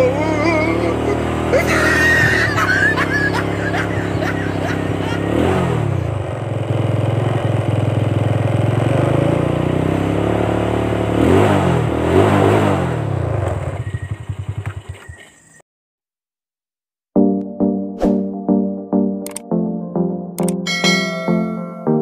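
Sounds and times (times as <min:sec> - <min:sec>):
small engine revving and sputtering: 0:00.0 - 0:15.6.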